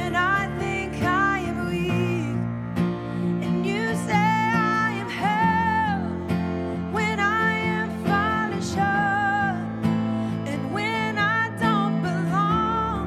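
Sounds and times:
woman singing: 0:00.0 - 0:02.6, 0:03.3 - 0:13.0
acoustic guitar: 0:00.0 - 0:13.0.

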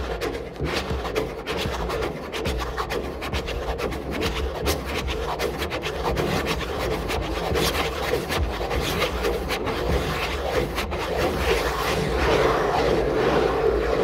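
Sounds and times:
rough rasping rubbing: 0:00.0 - 0:11.8.

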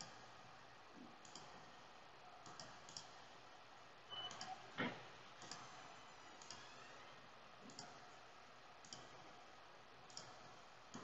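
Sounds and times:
faint computer mouse clicks: 0:02.4 - 0:03.1, 0:08.8 - 0:09.1, 0:10.1 - 0:11.0.

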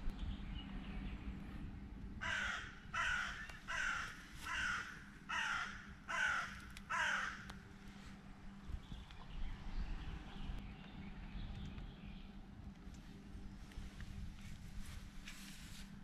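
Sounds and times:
crow cawing: 0:02.2 - 0:07.5.

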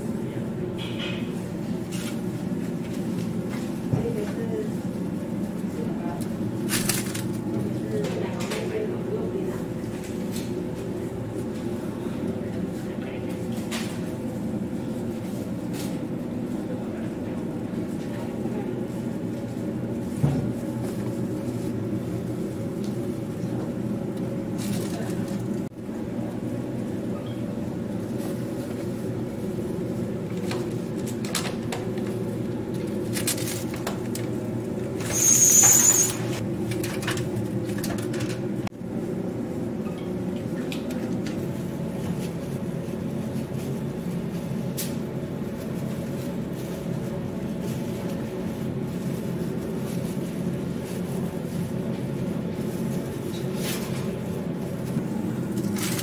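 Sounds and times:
low background hum: 0:00.0 - 0:56.0
plastic boxes and gloves rustling: 0:02.0 - 0:08.8, 0:40.9 - 0:56.0.

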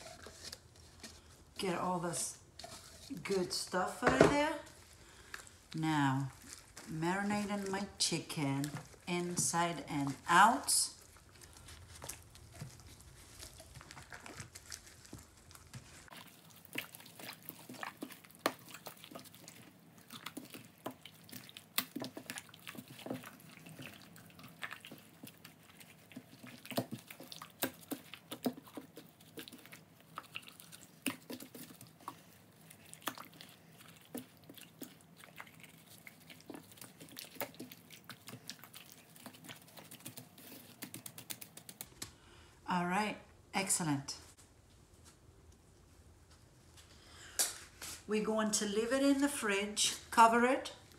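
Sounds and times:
wet squelches of hands rubbing: 0:11.0 - 0:42.0.

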